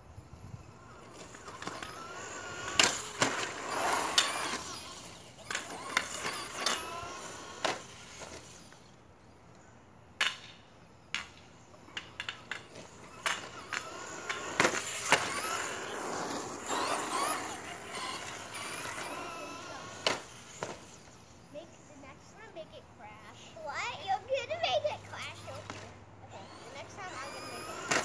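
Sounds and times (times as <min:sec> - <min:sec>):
toy car motor whining: 0:00.1 - 0:09.7, 0:11.0 - 0:28.0
toy car knocking and clattering: 0:01.0 - 0:08.9, 0:10.2 - 0:21.1, 0:25.4 - 0:28.0.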